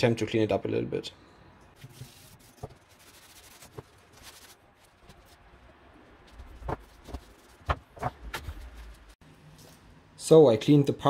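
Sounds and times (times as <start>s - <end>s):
cloth rubbing on metal: 1.8s - 5.5s.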